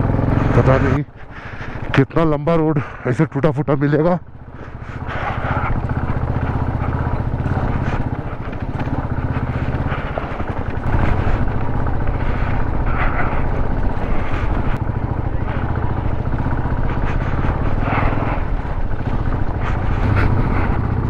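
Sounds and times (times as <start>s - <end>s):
motorcycle engine under load: 0.0s - 21.0s.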